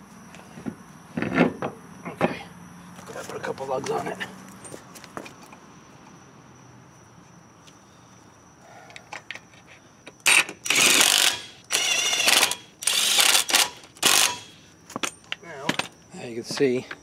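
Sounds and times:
ratchet wrench clicking: 10.3s - 14.6s.

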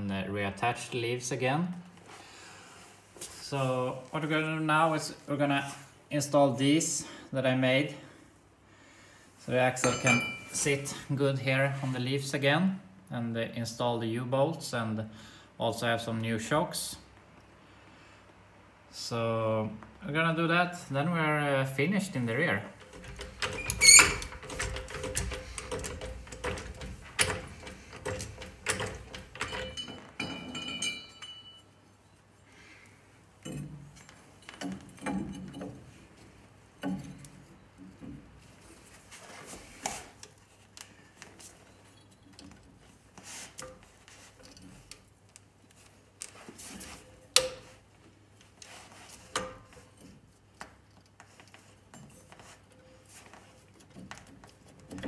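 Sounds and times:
metallic clinks and knocks: 9.8s - 10.7s, 22.8s - 31.9s, 33.4s - 36.1s.

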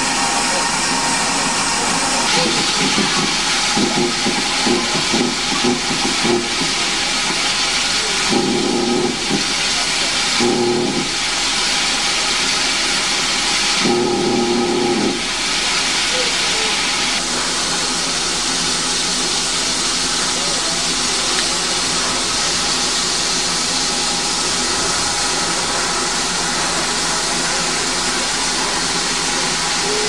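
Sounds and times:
steam hissing: 0.0s - 30.0s.

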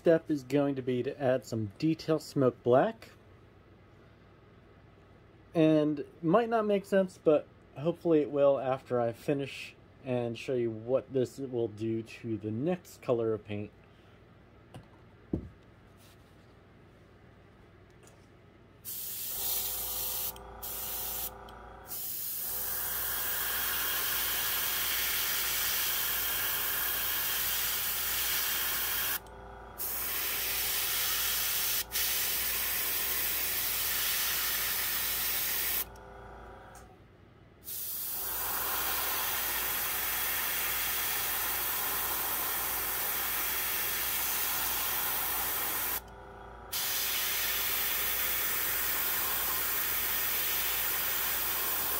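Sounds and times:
airbrush spraying air hiss: 18.8s - 29.2s, 29.8s - 35.9s, 37.6s - 46.0s, 46.7s - 51.9s.

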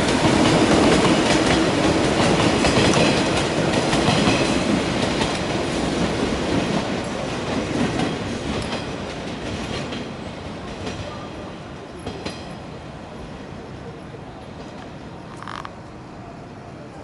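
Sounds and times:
wheels clicking over rail joints: 14.4s - 15.9s.

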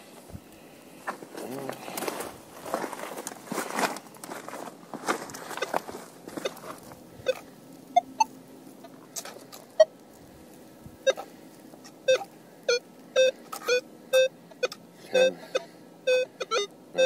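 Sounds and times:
metal detector beeps: 7.2s - 7.4s, 8.0s - 8.3s, 11.0s - 11.3s, 12.1s - 17.0s.

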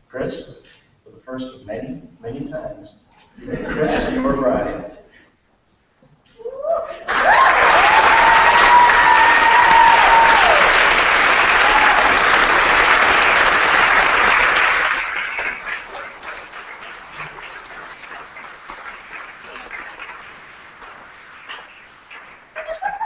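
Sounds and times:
long high cheer: 6.6s - 17.5s
crowd applauding: 7.1s - 23.0s.

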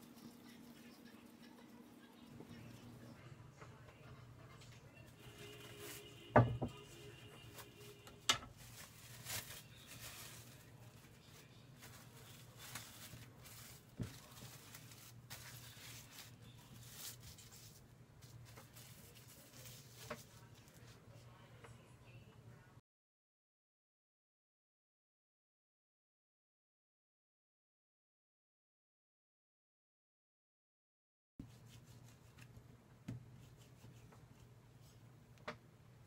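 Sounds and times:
cling film crinkling: 8.5s - 20.9s.

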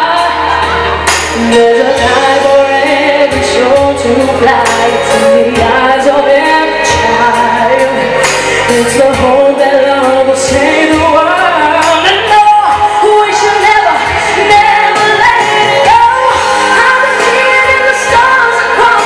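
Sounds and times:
low bass line: 0.0s - 11.2s
instrumental accompaniment: 0.0s - 19.0s.

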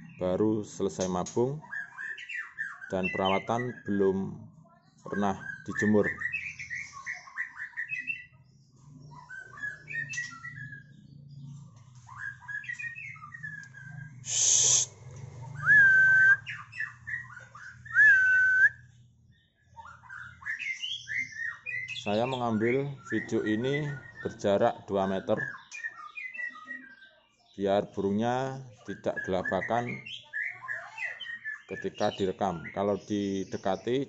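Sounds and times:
bird singing chirps and whistles: 0.0s - 4.1s, 5.1s - 27.2s, 28.9s - 34.0s
harsh noisy bird burst: 14.2s - 16.7s.

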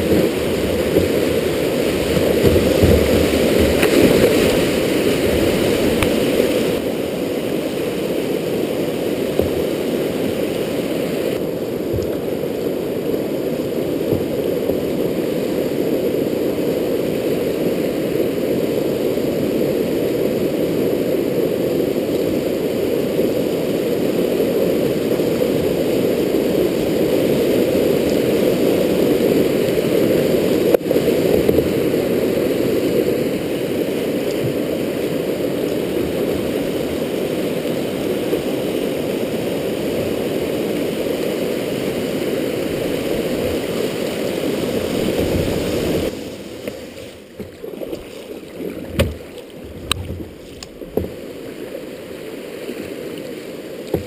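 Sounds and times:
river rapids rushing: 0.0s - 54.0s.

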